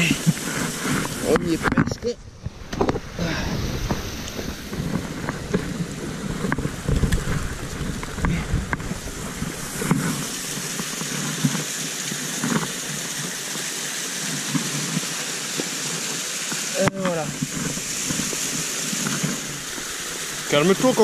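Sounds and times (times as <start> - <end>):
clothing rubbing on microphone: 0.0 - 11.7, 17.3 - 21.0
waterfall and stream rushing: 0.0 - 21.0.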